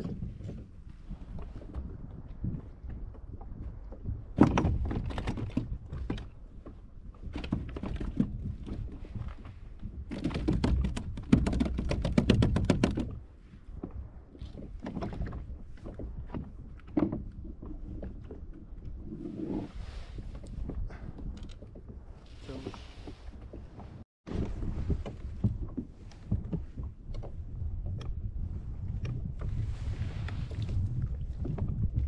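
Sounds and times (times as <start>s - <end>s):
fishing gear knocks and clicks: 4.4s - 6.3s, 10.1s - 13.2s.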